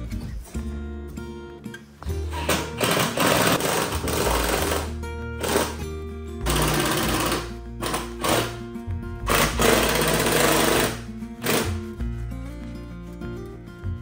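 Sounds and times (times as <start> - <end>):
background music with deep bass: 0.0 - 14.0
loud rattling noise bursts: 2.4 - 5.8, 6.4 - 8.6, 9.3 - 11.9.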